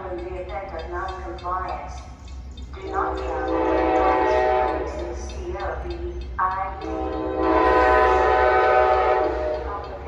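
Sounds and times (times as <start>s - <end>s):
locomotive air horn blasts: 2.8s - 5.0s, 6.8s - 9.7s.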